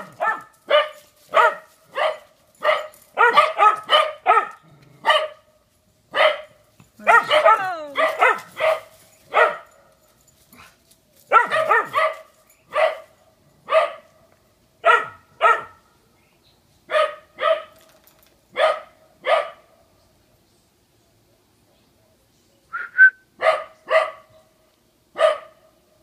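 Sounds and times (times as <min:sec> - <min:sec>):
small dog barking: 0:00.0 - 0:05.5, 0:06.1 - 0:09.9, 0:10.6 - 0:14.1, 0:14.8 - 0:15.8, 0:16.9 - 0:17.8, 0:18.5 - 0:19.7, 0:23.4 - 0:24.4, 0:25.1 - 0:25.8.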